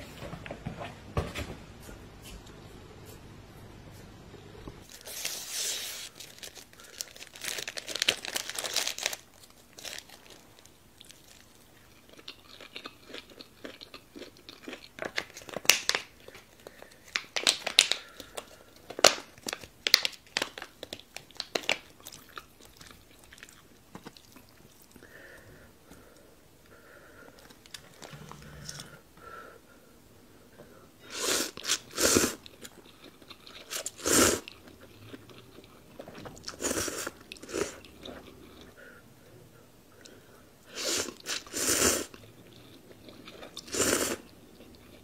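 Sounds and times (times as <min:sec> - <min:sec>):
plastic wrappers crinkling: 0:04.9 - 0:12.0, 0:15.0 - 0:22.8
food crunching: 0:06.2 - 0:25.0, 0:31.4 - 0:38.8, 0:41.0 - 0:45.0.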